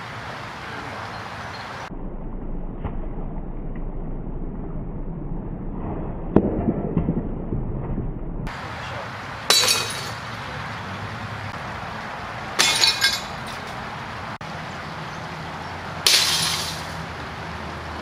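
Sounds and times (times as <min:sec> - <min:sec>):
glass cracking when hit: 0:09.5 - 0:10.2, 0:12.6 - 0:13.6, 0:16.1 - 0:17.0
glass tinkling: 0:12.6 - 0:13.6.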